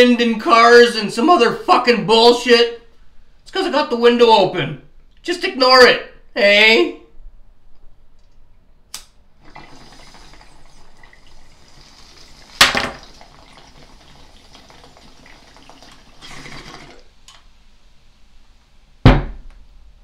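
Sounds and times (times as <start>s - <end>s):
sharp click: 8.9s - 9.2s
water bong bubbling: 9.4s - 11.8s.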